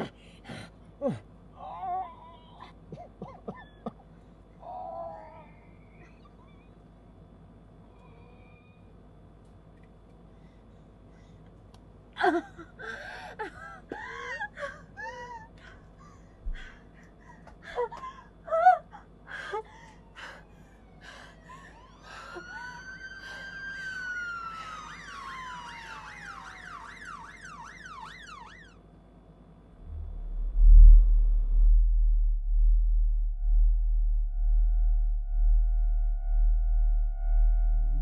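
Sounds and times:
woman crying and gasping: 0:12.2 - 0:25.0
police siren wailing and yelping: 0:19.9 - 0:28.8.

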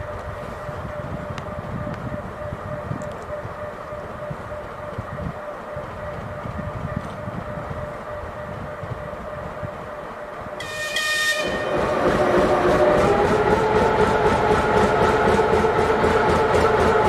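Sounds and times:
locomotive engine rumbling: 0:00.0 - 0:17.0
locomotive horn blast: 0:10.6 - 0:13.0.

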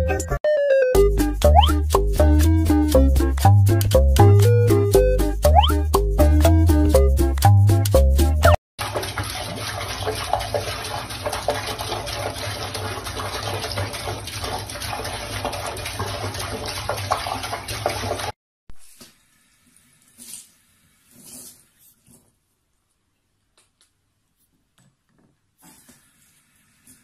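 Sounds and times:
tap water splashing into basin: 0:08.8 - 0:18.4.

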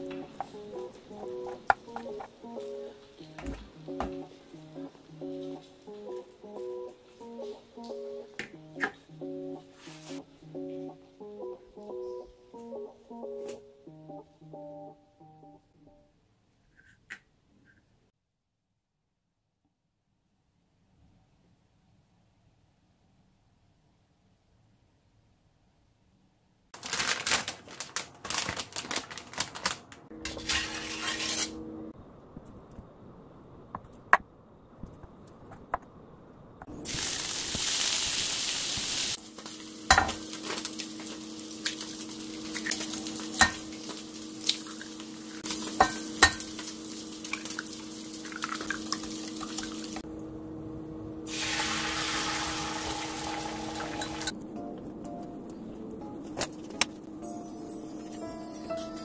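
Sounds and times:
induction hob humming: 0:30.1 - 0:35.1, 0:39.0 - 0:57.2
egg sizzling in a pan: 0:36.7 - 0:50.0, 0:51.3 - 0:54.3
meat sizzling in a pan: 0:36.8 - 0:50.0, 0:51.3 - 0:54.3
utensils and dishes clinking: 0:39.4 - 0:49.7, 0:53.3 - 0:54.4.

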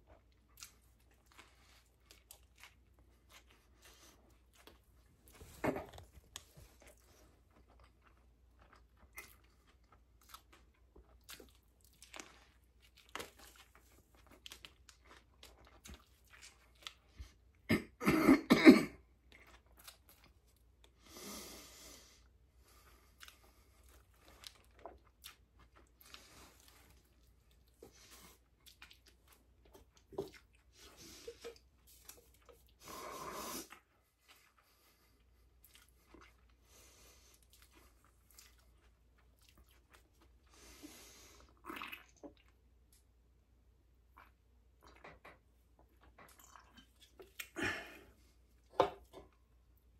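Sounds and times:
person chewing: 0:00.0 - 0:17.6, 0:19.2 - 0:21.0, 0:22.7 - 0:42.6, 0:44.1 - 0:48.7
person coughing: 0:17.7 - 0:19.0.

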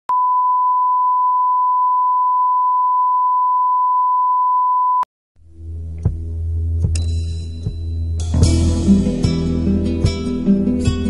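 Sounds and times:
music with low bass drone: 0:05.4 - 0:11.0.

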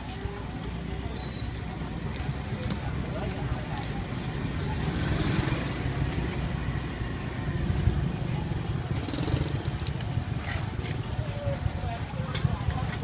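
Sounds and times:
motorbikes: 0:00.0 - 0:13.0
street traffic rumble: 0:00.0 - 0:13.0.

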